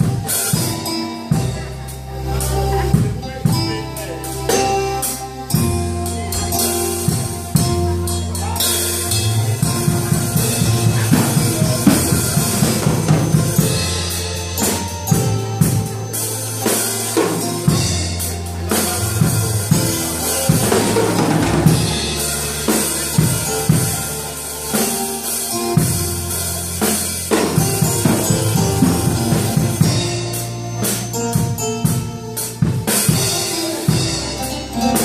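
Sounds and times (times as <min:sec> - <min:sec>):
drum kit playing: 0:00.0 - 0:35.0
synthesizer keyboard chords: 0:00.0 - 0:35.0.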